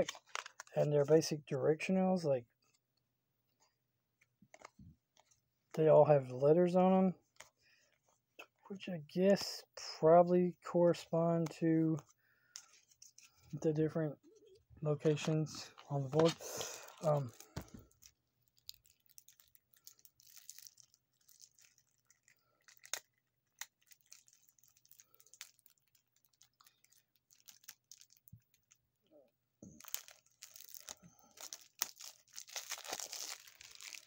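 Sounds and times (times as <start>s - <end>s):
wrapping crinkling and tearing: 0.0s - 0.9s, 14.4s - 28.8s, 29.7s - 34.0s.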